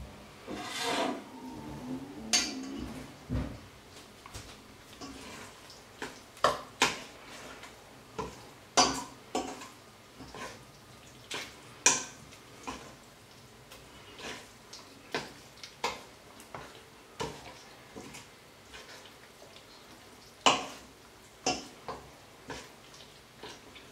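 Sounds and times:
metal spoon scraping a bowl: 0.5 - 1.2.

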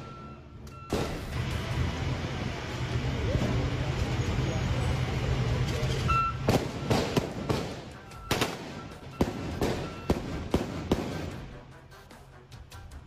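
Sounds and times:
vehicle engine humming: 0.0 - 13.0
sharp cracks and bangs: 0.9 - 1.8, 6.4 - 11.6.

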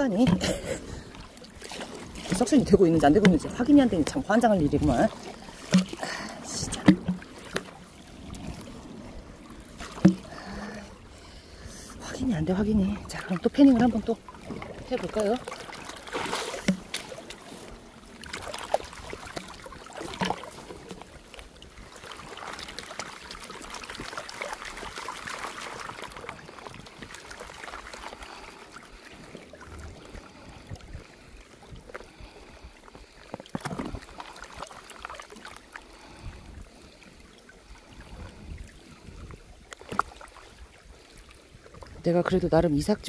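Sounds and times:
water sloshing in pan: 0.0 - 8.7, 9.5 - 10.8.

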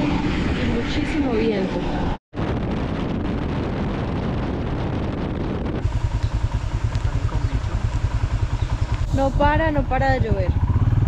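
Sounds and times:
low fast pulsing: 0.0 - 11.0
wind buffeting microphone: 0.0 - 11.0
motorcycle engine running: 3.4 - 11.0.

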